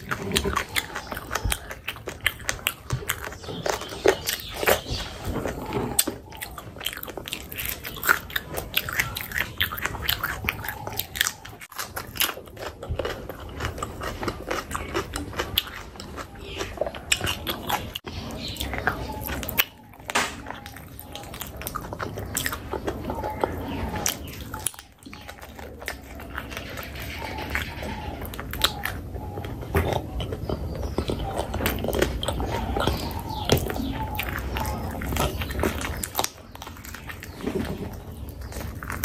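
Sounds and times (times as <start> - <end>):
close chewing and biting: 0.0 - 39.0.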